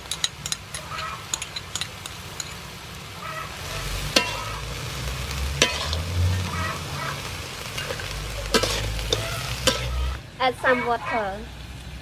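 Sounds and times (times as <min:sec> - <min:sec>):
metal spatula clinking on wok: 0:00.0 - 0:02.7, 0:04.1 - 0:04.5, 0:05.6 - 0:06.0, 0:07.8 - 0:10.0
shells clattering in a wok: 0:00.0 - 0:02.7, 0:04.0 - 0:04.6, 0:07.7 - 0:10.0
food sizzling: 0:00.0 - 0:10.6.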